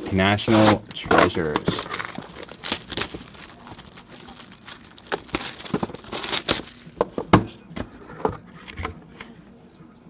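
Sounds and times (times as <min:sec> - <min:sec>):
plastic shrink-wrap crinkling: 0:00.0 - 0:07.4.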